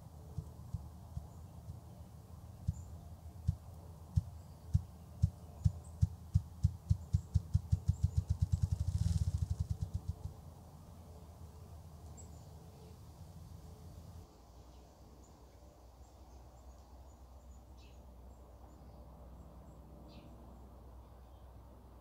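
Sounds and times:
grouse drumming wingbeat thumps: 0.3s - 1.9s, 3.4s - 10.4s.

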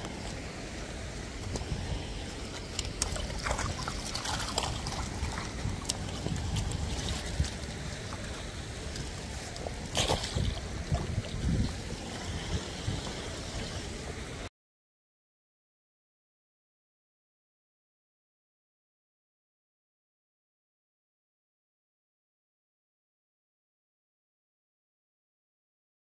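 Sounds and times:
stream running over stones: 0.0s - 14.5s.

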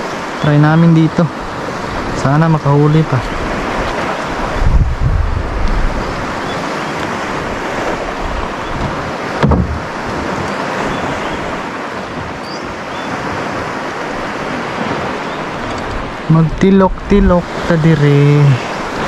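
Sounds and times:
waves rushing: 0.0s - 19.0s
wind: 0.0s - 19.0s
low thump: 8.8s - 9.9s.

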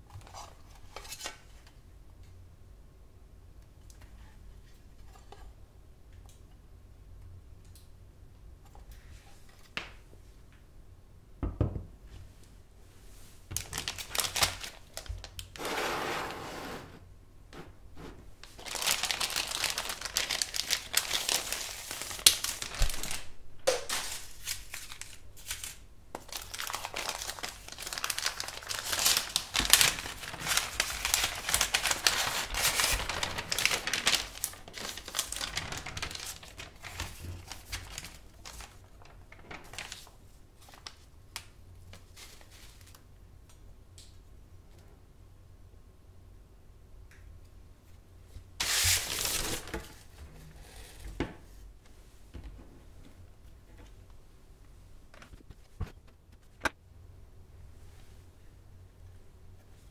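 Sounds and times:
paper wrapping crinkling: 13.6s - 15.7s, 18.4s - 43.0s, 48.6s - 50.1s.

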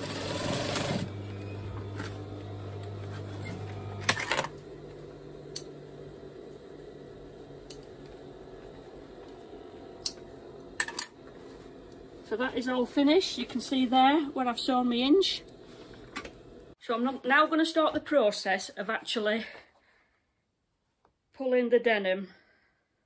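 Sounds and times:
sewing machine stitching: 0.0s - 1.2s
sewing machine motor humming: 0.0s - 16.8s.

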